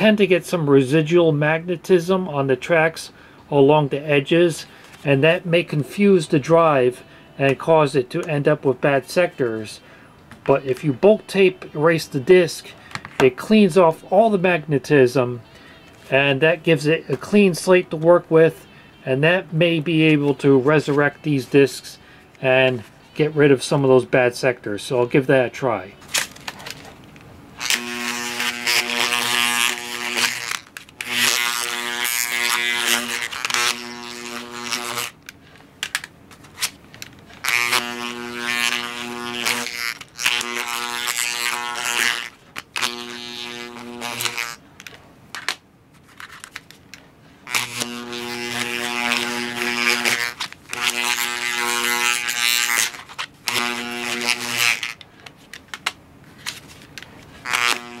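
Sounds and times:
bulk tape eraser buzzing: 0:27.5 - 0:35.2, 0:36.6 - 0:44.6, 0:47.4 - 0:55.0, 0:57.4 - 0:58.0.

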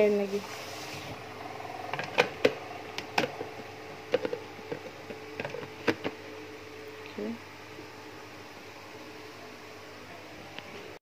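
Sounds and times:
faint steady hum: 0:00.0 - 0:11.0
plastic clicks and taps: 0:04.1 - 0:06.1.

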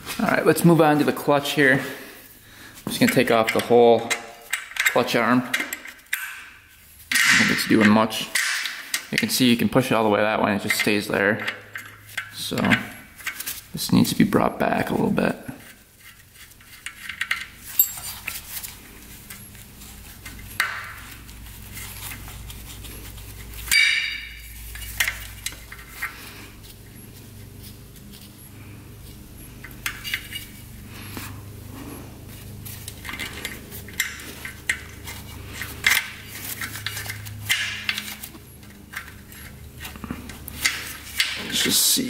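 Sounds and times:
wrench clinking on metal: 0:17.0 - 0:18.3, 0:23.7 - 0:26.1
metal clank ringing: 0:23.7 - 0:24.4.

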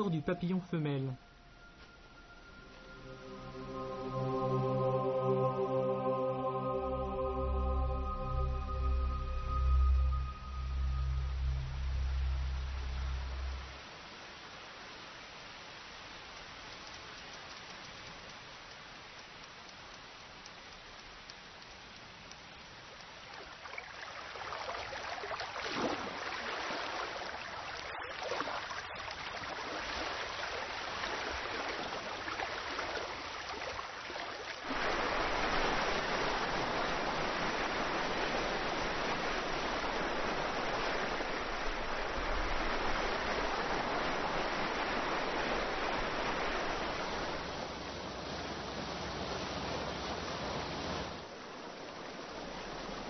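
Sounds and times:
waterfall rushing: 0:00.0 - 0:13.9, 0:34.6 - 0:48.0
rain falling and dripping: 0:00.0 - 0:53.0.

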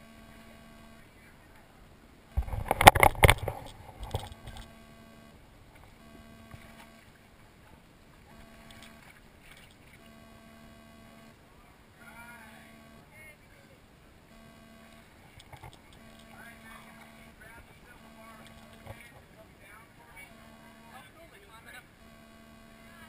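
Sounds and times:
water lapping: 0:14.8 - 0:21.8.

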